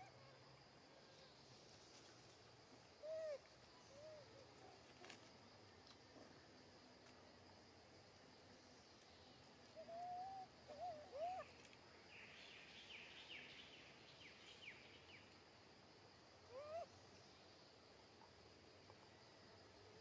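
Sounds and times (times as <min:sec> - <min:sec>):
faint whistled animal calls: 0:03.0 - 0:04.8, 0:09.7 - 0:11.6, 0:16.4 - 0:17.0.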